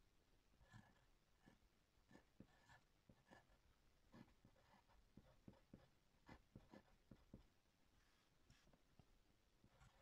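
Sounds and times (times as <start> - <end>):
pencil writing on paper: 0.6 - 7.6, 9.6 - 10.0.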